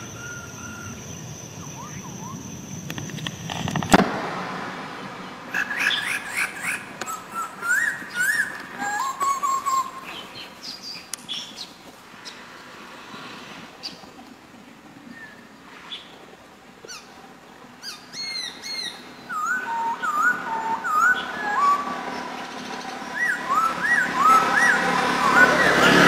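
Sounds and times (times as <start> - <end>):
bird whistled upward notes: 0.0 - 2.6, 5.7 - 11.5, 17.8 - 26.0
bird short high calls: 0.0 - 2.8, 5.5 - 12.4.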